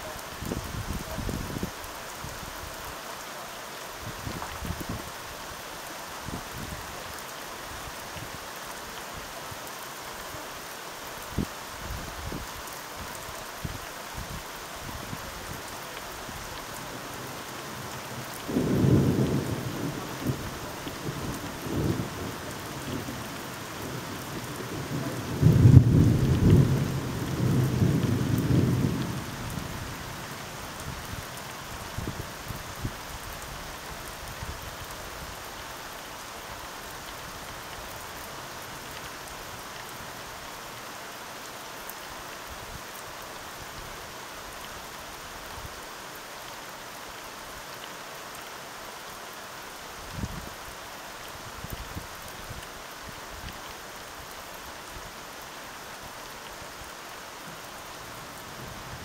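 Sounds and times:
steady rain: 0.0 - 59.0
distant thunder rumbling: 23.8 - 29.2.

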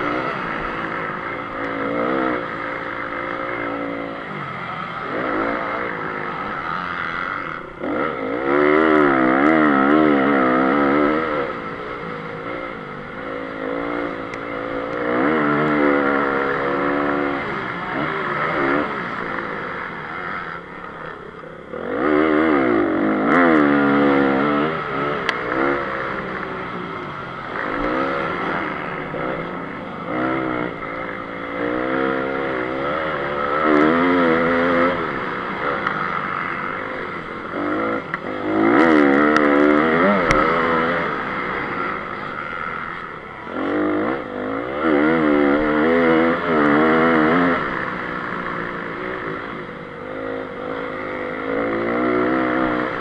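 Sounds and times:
motocross engine revving: 0.0 - 53.0.

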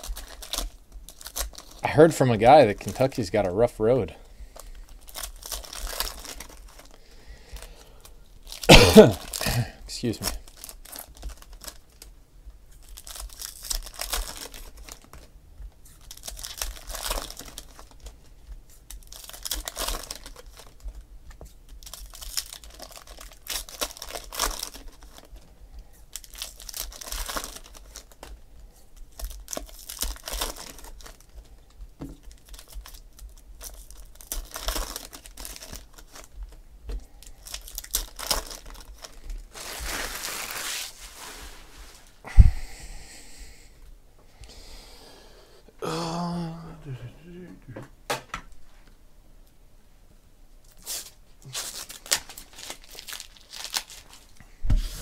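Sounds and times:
foil wrappers crinkling and tearing: 0.0 - 42.2, 50.7 - 55.0.

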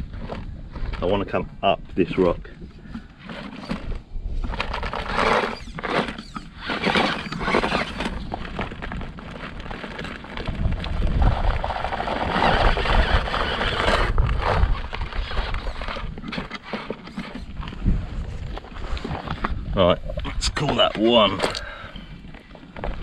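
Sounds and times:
tyres scrabbling on rock: 2.0 - 23.0
rc car motor whirring: 4.5 - 8.9, 11.8 - 17.7.

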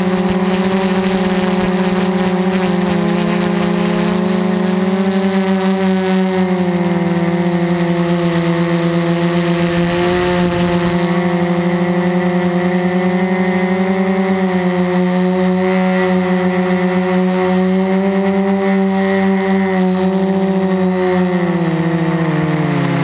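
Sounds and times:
drone motors and propellers whining: 0.0 - 23.0.

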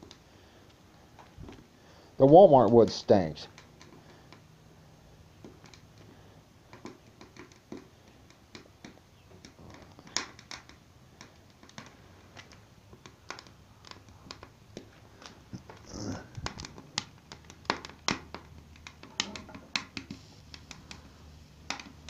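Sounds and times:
firewood crackling: 0.0 - 22.0
sharp fire pops: 9.4 - 22.0.

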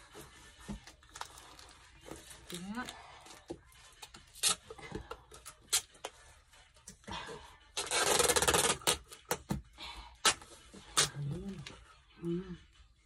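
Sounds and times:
packing tape pulled off roll: 4.0 - 4.7, 7.7 - 9.4.

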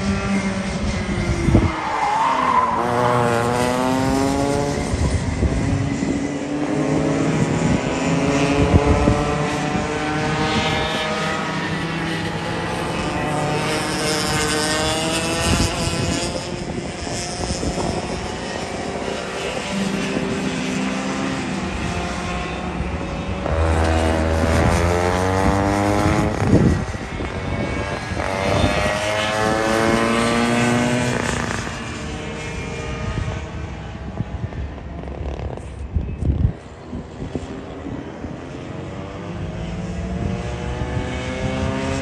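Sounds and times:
racing kart engines revving: 0.0 - 42.0
kart passing close by: 2.8 - 33.9.

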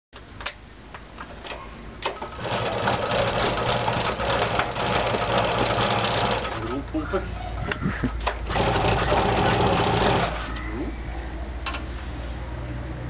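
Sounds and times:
moped engine running: 2.3 - 6.8, 8.4 - 10.6.

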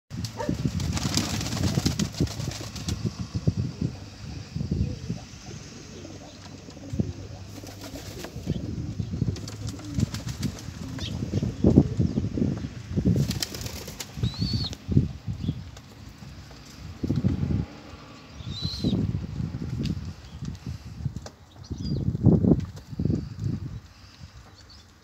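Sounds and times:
pigeon wings flapping: 0.2 - 3.4, 6.5 - 8.6, 9.2 - 11.1, 13.1 - 14.6.

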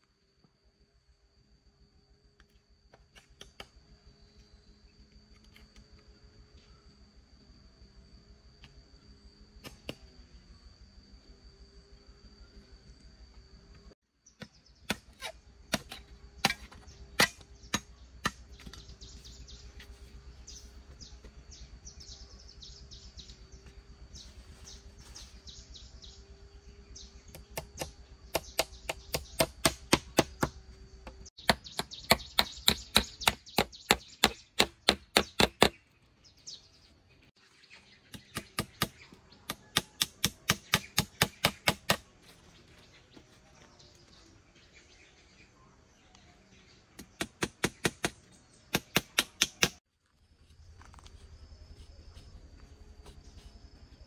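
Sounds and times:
hand tool striking wood: 14.4 - 18.8, 27.4 - 35.8, 38.1 - 42.1, 47.0 - 49.8.

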